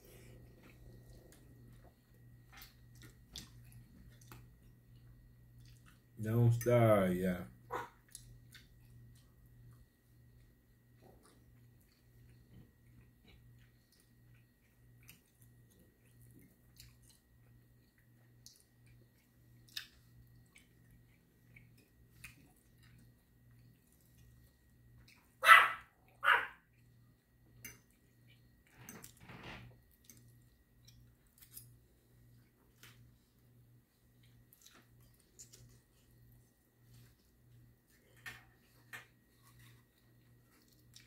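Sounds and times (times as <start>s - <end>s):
dog barking: 7.7s - 8.0s, 25.4s - 26.6s.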